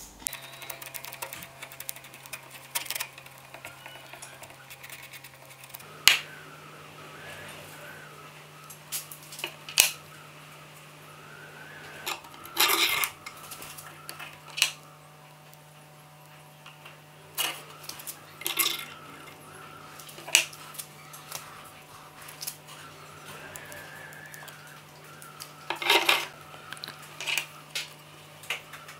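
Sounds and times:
sharp clicks and light taps: 0:00.1 - 0:06.4.

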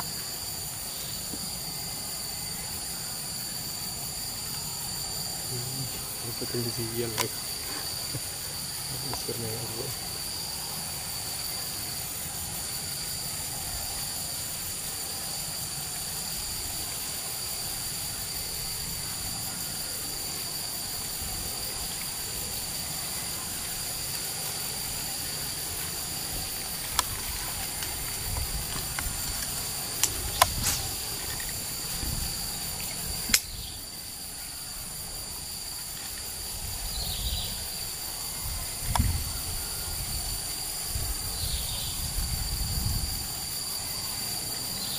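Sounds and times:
insects droning: 0:00.0 - 0:44.9
sharp clicks: 0:33.3 - 0:33.6.

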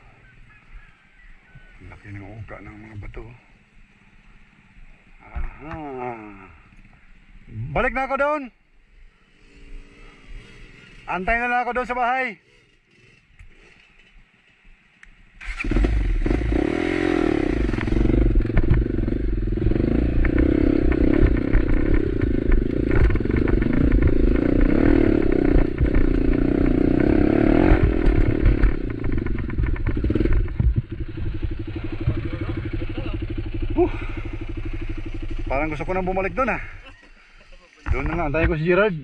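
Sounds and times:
motorcycle engine under load: 0:15.4 - 0:37.3
knocks and rattles of bike: 0:17.6 - 0:37.2, 0:37.8 - 0:38.9.

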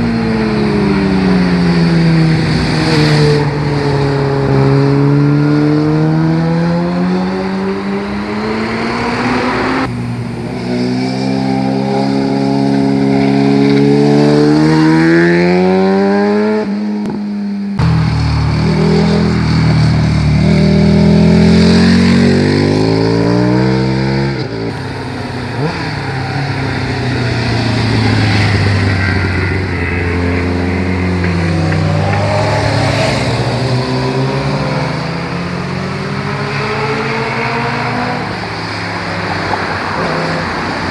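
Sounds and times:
motorcycles accelerating past: 0:00.0 - 0:16.8, 0:17.5 - 0:40.9.

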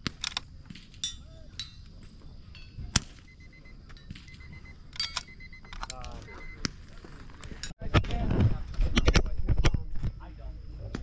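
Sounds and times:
sharp metallic clicks: 0:02.6 - 0:06.8.

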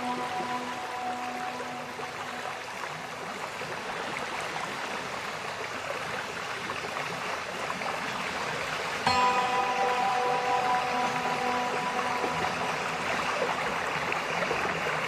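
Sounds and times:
held musical chord: 0:00.0 - 0:03.0, 0:09.1 - 0:15.0.

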